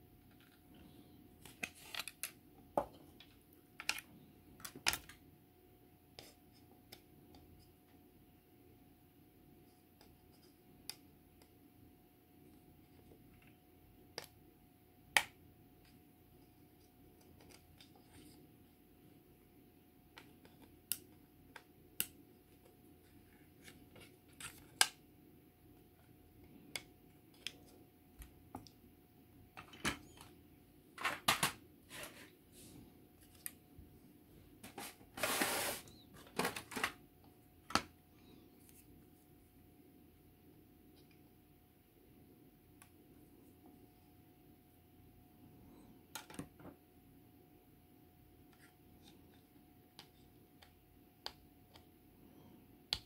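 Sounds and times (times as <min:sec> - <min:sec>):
faint steady hum: 0:00.0 - 0:53.0
plastic parts clicking and tapping: 0:01.4 - 0:05.2, 0:36.2 - 0:37.0.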